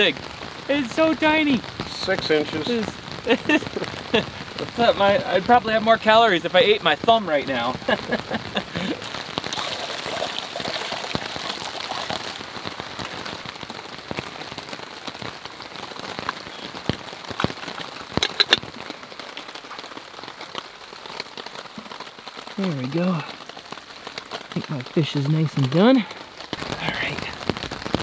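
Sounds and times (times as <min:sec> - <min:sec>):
rain falling: 0:00.0 - 0:28.0.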